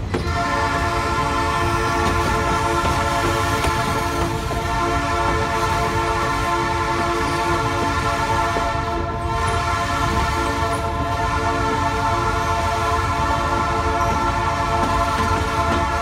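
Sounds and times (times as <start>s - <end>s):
train wheels rumbling: 0.0s - 16.0s.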